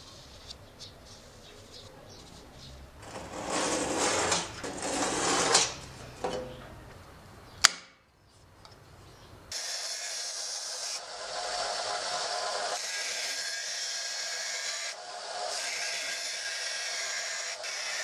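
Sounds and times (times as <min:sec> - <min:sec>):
steel scraping on workbench: 0:03.0 - 0:06.6
sharp snap: 0:07.6 - 0:08.0
power tool running: 0:09.5 - 0:18.0.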